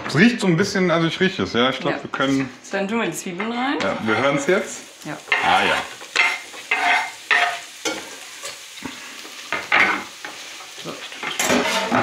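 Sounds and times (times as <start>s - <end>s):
onions sizzling in hot oil: 3.6s - 12.0s
water boiling: 3.6s - 12.0s.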